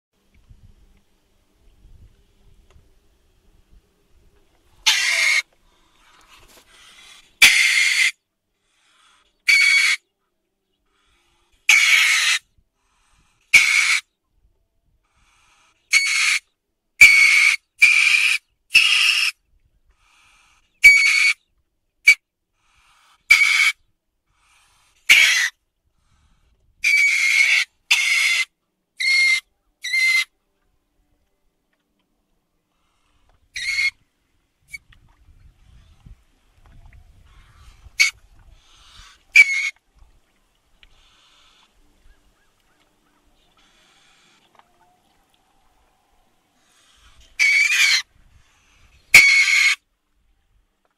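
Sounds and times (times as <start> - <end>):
weasel high-pitched calls: 4.8 - 5.5, 6.9 - 8.2, 9.4 - 10.1, 11.7 - 12.4, 13.5 - 14.1, 15.9 - 19.4, 20.8 - 21.4, 23.3 - 23.8, 25.1 - 25.6, 26.8 - 30.3, 33.5 - 34.0, 37.3 - 39.8, 46.7 - 48.1, 49.0 - 49.8.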